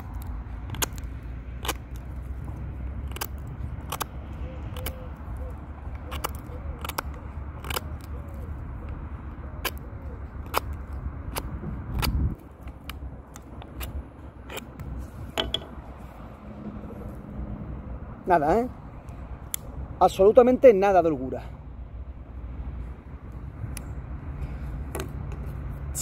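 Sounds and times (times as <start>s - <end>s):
knife carving wood cracks: 0.0s - 16.0s.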